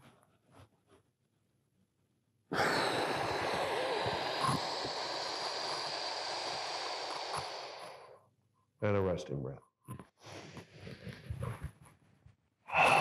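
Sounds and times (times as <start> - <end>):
deep breath hissing through mouth: 2.5 - 8.2, 12.7 - 13.0.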